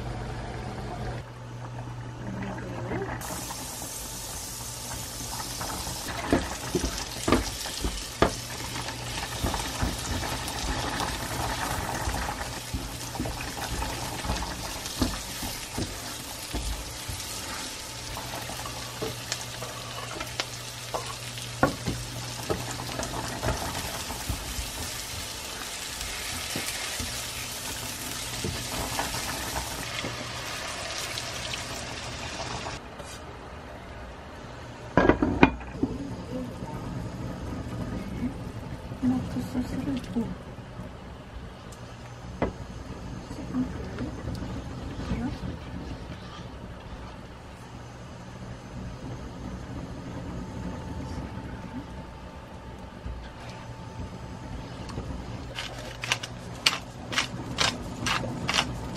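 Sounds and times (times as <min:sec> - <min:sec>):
onions frying in oil: 0:03.2 - 0:32.8, 0:55.4 - 0:58.9.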